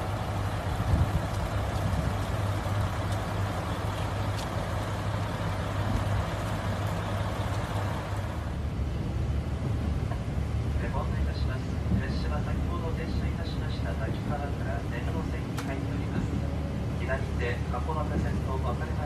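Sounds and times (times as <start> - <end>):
diesel railcar engine droning: 0.0 - 19.0.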